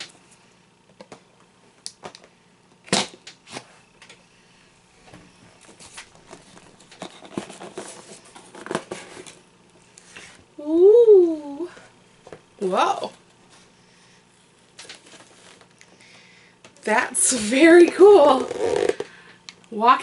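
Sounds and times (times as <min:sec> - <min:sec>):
cardboard box rustling and scraping: 0:05.7 - 0:09.4.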